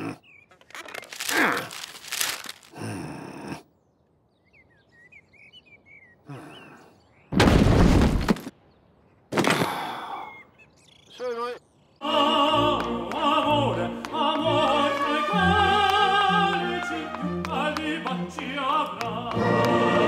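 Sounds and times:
bird chirps: 0:00.1 - 0:01.2, 0:03.7 - 0:07.4, 0:10.0 - 0:12.0.

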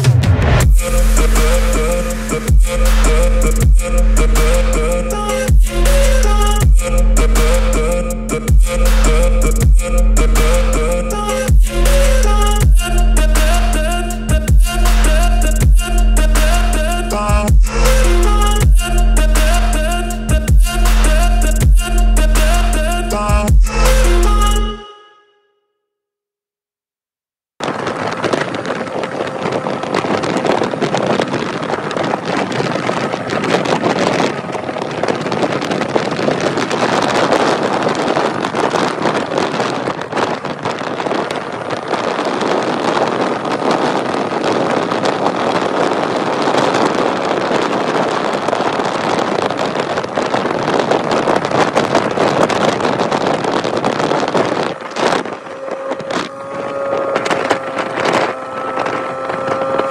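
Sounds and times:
motorcycle engine running: 0:00.0 - 0:24.7, 0:54.7 - 0:59.9
wind rushing over microphone: 0:00.0 - 0:24.8, 0:27.6 - 0:59.9.

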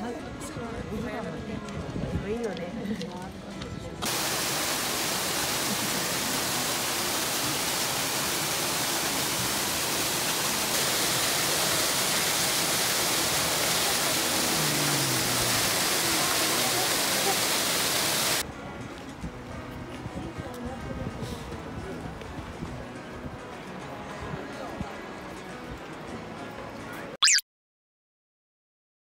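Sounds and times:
water churning into pool: 0:04.0 - 0:18.4.

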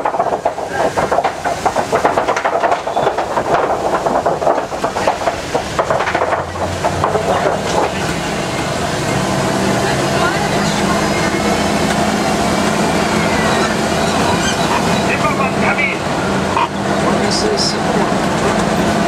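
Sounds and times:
boards clattering under tyres: 0:00.0 - 0:09.3
truck engine hum: 0:00.0 - 0:19.0.

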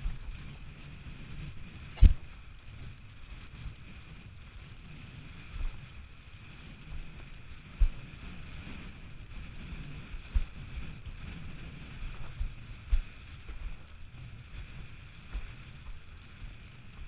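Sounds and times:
wind buffeting microphone: 0:00.0 - 0:17.0
sudden low thumps: 0:01.9 - 0:02.4.

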